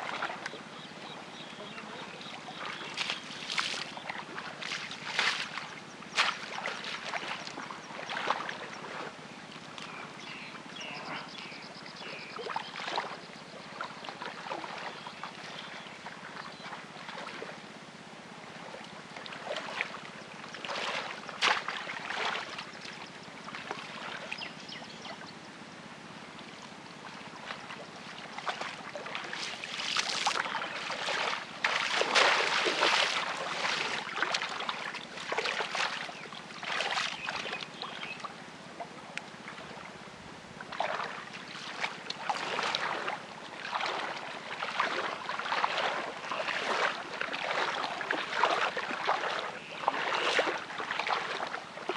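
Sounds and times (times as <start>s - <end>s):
muddy water splashing: 0.0s - 25.2s, 26.3s - 40.0s, 40.6s - 51.9s.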